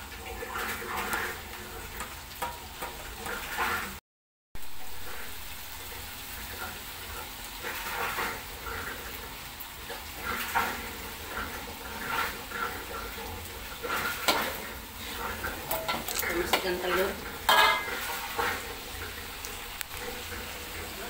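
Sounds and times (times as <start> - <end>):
paste frying in oil: 0.0 - 4.0, 4.6 - 21.0
metal spatula scraping wok: 0.3 - 4.0, 7.6 - 9.2, 9.8 - 19.2.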